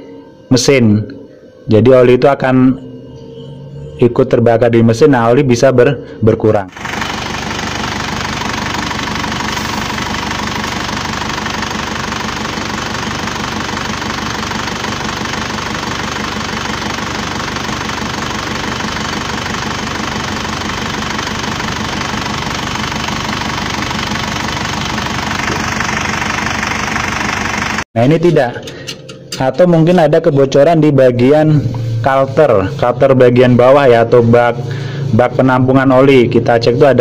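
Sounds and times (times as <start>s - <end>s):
car engine idling: 6.7s - 27.9s.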